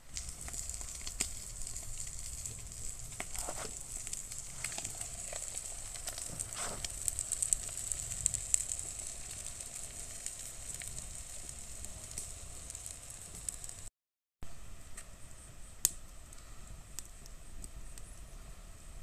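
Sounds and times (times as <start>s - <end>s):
eggs and ham sizzling in a pan: 0.0s - 13.9s
wood fire crackling: 0.0s - 13.9s, 15.0s - 19.0s.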